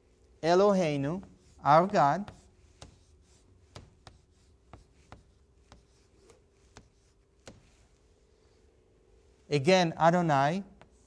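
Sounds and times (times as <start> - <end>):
faint steady hum: 0.0 - 11.0
chalk tapping on chalkboard: 1.1 - 8.1, 10.8 - 11.0.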